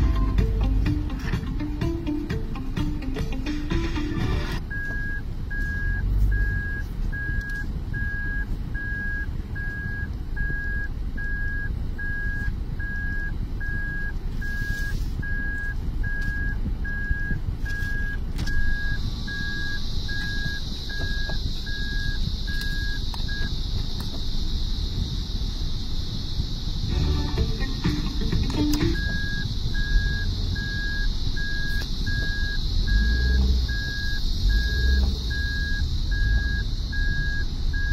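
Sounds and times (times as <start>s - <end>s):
car warning beep: 0.0s - 25.3s, 25.9s - 37.9s
car idling rumble: 0.0s - 37.9s
steady high hiss: 18.6s - 37.7s.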